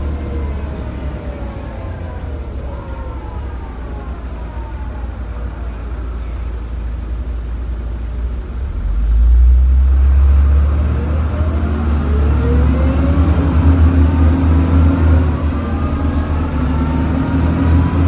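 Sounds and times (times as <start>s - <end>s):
bus diesel engine rumble: 0.0s - 18.0s.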